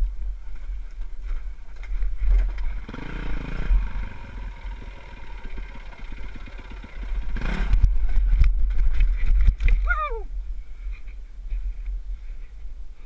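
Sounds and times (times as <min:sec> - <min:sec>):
dirt bike engine running: 0:00.1 - 0:09.6
wind rumble on microphone: 0:07.0 - 0:13.0.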